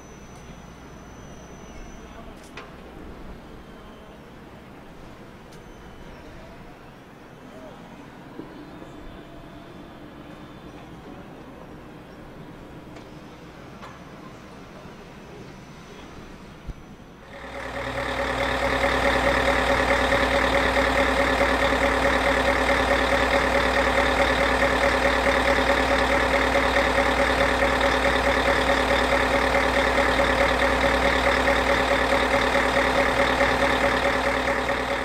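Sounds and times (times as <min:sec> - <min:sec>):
engine idling: 0:17.2 - 0:35.0.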